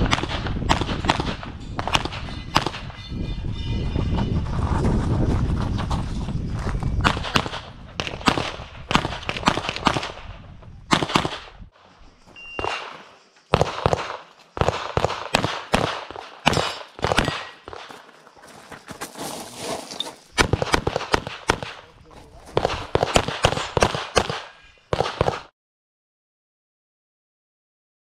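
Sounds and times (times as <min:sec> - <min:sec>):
pistol shots: 0:00.0 - 0:02.9, 0:07.0 - 0:10.3, 0:10.9 - 0:11.5, 0:12.6 - 0:18.0, 0:20.4 - 0:21.9, 0:22.5 - 0:25.5.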